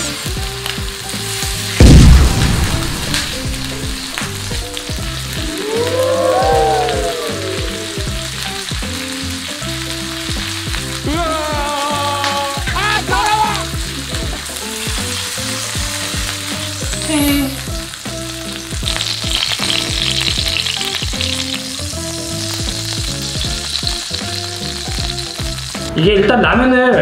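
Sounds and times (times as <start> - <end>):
steak sizzling in a pan: 0.0 - 26.8
background music: 0.0 - 27.0.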